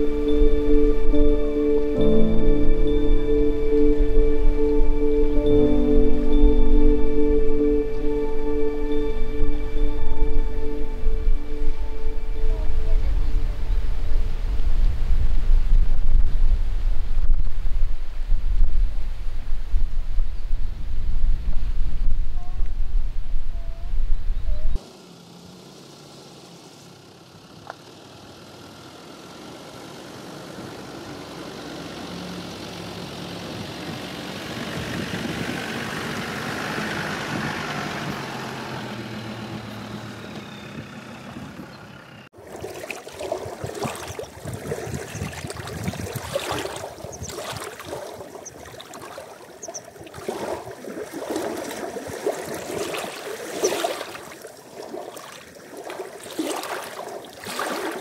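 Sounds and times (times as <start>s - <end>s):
vehicle driving past: 24.8s - 42.3s.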